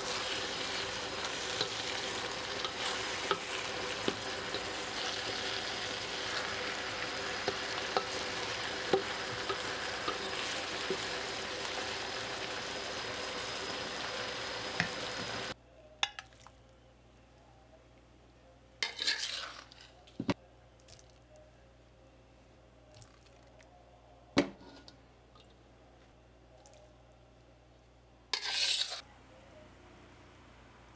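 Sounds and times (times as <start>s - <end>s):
food sizzling in a pan: 0.0s - 15.6s, 18.8s - 19.8s, 28.4s - 29.0s.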